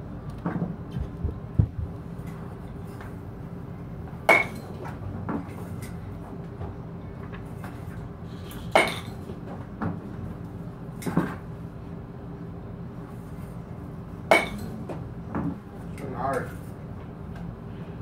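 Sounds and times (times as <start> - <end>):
bat hitting balls off tee: 4.3 - 4.7, 14.3 - 15.0.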